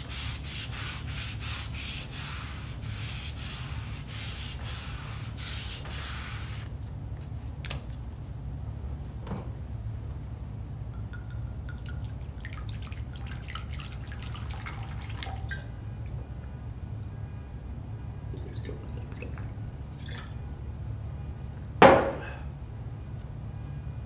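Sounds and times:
steady low hum: 0:00.0 - 0:24.0
liquid gurgling in glass bottle: 0:18.4 - 0:20.4
bottle knocking on wooden table: 0:21.8 - 0:22.2.

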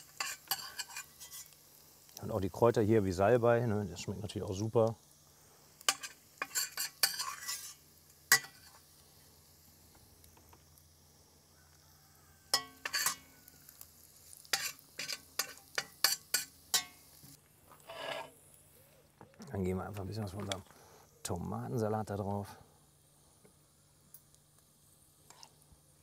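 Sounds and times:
metal spoon scraping frying pan: 0:00.0 - 0:01.6, 0:05.9 - 0:08.8, 0:12.5 - 0:13.3, 0:14.4 - 0:17.0, 0:17.7 - 0:18.4
butter sizzling: 0:00.0 - 0:20.9, 0:22.8 - 0:26.0.

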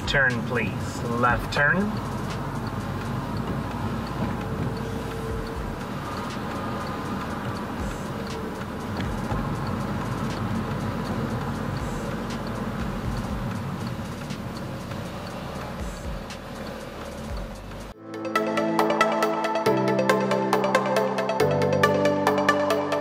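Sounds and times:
faint regular ticking: 0:00.0 - 0:18.0
car engine and tyre noise: 0:00.0 - 0:23.0.

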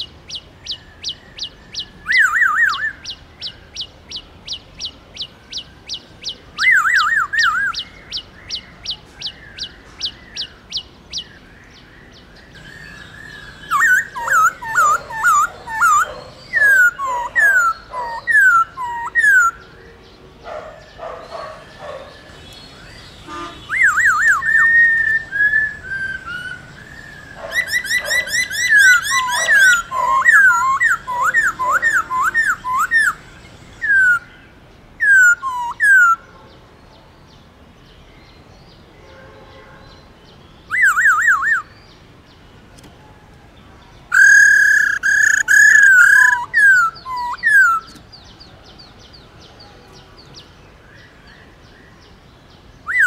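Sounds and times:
bird singing whistled notes: 0:00.0 - 0:19.9, 0:20.8 - 0:34.4, 0:35.0 - 0:36.2, 0:40.5 - 0:42.0, 0:44.1 - 0:49.6.

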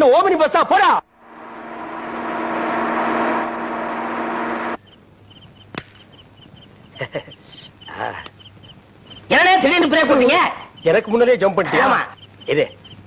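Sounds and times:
lorry engine and road noise: 0:01.1 - 0:05.2
crickets chirping: 0:01.1 - 0:13.0.

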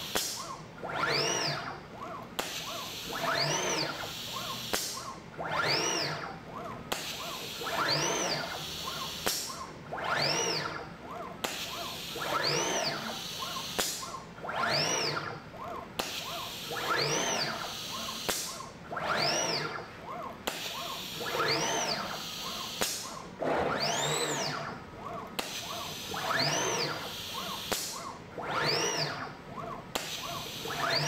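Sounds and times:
machine motors whining: 0:00.0 - 0:31.0
sharp machine click: 0:04.4 - 0:05.2, 0:08.9 - 0:09.7, 0:13.4 - 0:14.2, 0:15.6 - 0:18.7, 0:20.4 - 0:24.6, 0:25.3 - 0:28.2.

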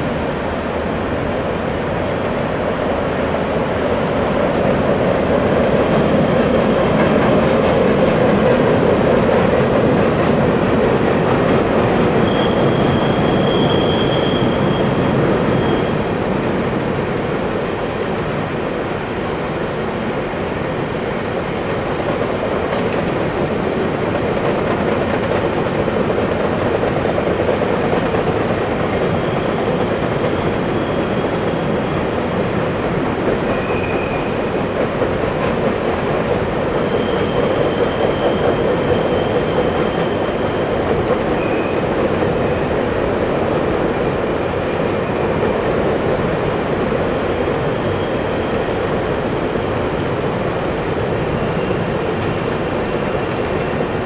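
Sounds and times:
train wheels rumbling on rails: 0:00.0 - 0:54.0
high-pitched wheel squeals: 0:12.2 - 0:16.1, 0:29.1 - 0:35.5, 0:36.8 - 0:42.7.

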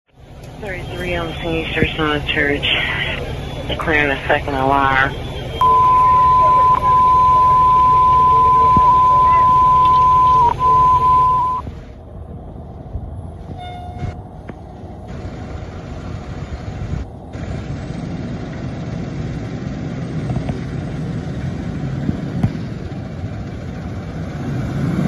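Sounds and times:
fire truck diesel engine: 0:00.1 - 0:25.0
high-pitched radio alert tone: 0:00.7 - 0:11.6
brief tone: 0:03.2 - 0:11.7, 0:13.6 - 0:14.2.

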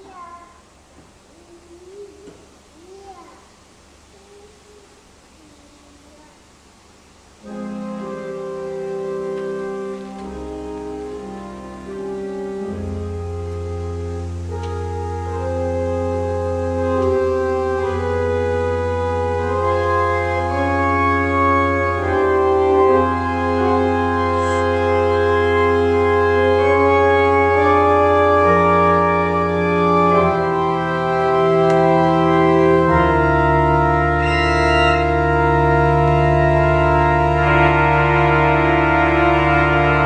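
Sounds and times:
church organ chords: 0:07.2 - 0:40.0.

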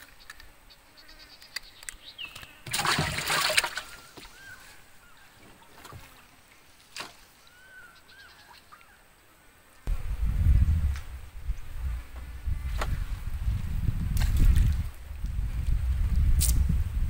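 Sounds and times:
faint bird chirps: 0:00.0 - 0:02.7, 0:03.8 - 0:06.0, 0:07.4 - 0:09.4
water splash: 0:02.6 - 0:04.5.

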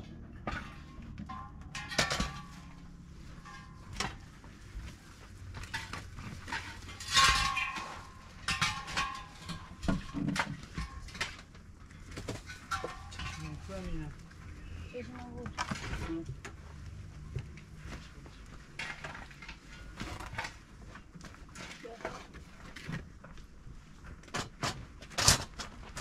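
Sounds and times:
dishes clattering: 0:00.4 - 0:02.8, 0:05.6 - 0:11.4, 0:12.5 - 0:13.6
dishes and utensils clinking: 0:00.4 - 0:04.2, 0:05.6 - 0:11.4, 0:12.5 - 0:13.8.

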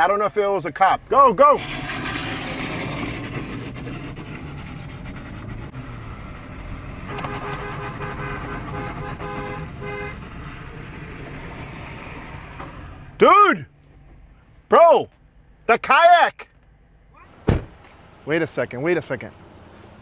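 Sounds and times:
vehicles driving on road: 0:00.0 - 0:20.0
car horn tooting: 0:07.1 - 0:10.3.

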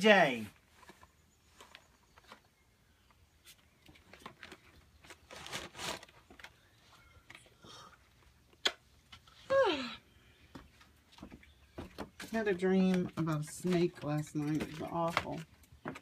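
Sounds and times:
rustling: 0:00.4 - 0:07.4.

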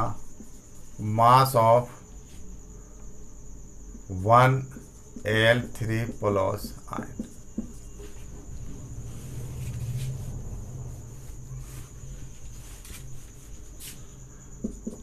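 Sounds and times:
steady low hum: 0:00.0 - 0:15.0
marker writing on whiteboard: 0:04.6 - 0:10.1, 0:14.6 - 0:15.0
high-pitched whine: 0:05.3 - 0:14.3.

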